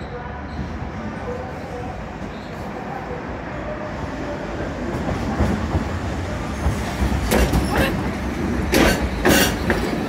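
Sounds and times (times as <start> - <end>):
streetcar rumbling: 0.0 - 10.0.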